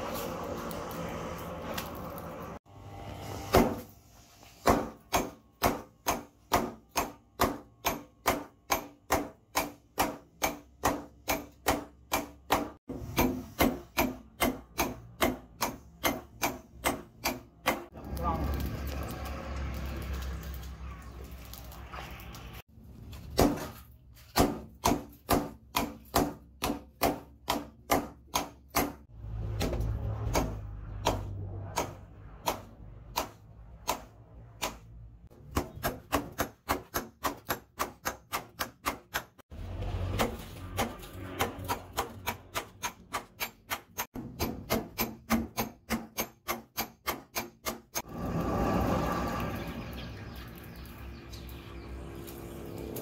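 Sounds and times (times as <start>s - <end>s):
hammer striking hot steel on anvil: 4.6s - 17.9s, 24.4s - 34.8s, 40.1s - 48.1s.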